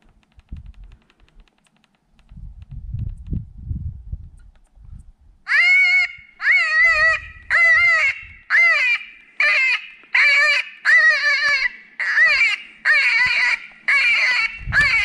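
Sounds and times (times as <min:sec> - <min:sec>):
predator call whining cry: 0:05.5 - 0:15.0.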